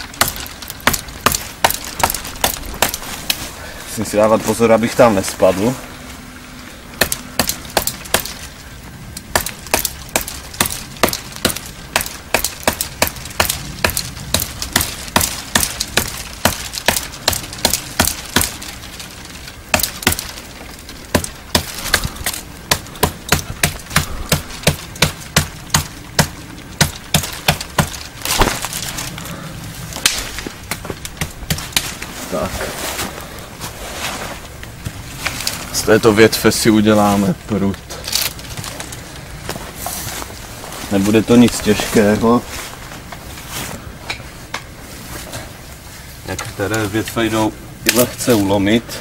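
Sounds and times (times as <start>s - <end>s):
knife chopping into branch: 7.0s - 8.4s, 9.3s - 18.6s, 21.1s - 28.9s.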